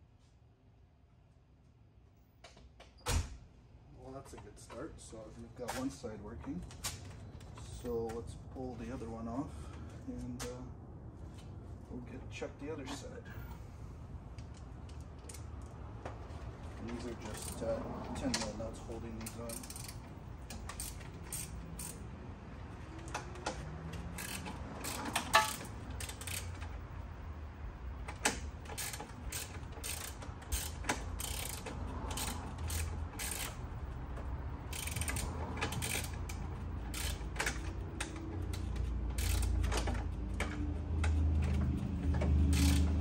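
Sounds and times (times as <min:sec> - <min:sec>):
ratchet wrench clicking: 0:17.2 - 0:17.8, 0:18.4 - 0:22.0, 0:22.9 - 0:26.8, 0:28.1 - 0:33.8, 0:34.6 - 0:43.0.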